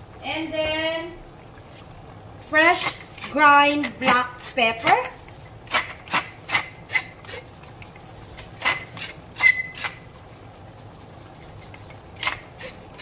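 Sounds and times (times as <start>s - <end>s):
pepper mill grinding: 2.8s - 13.0s.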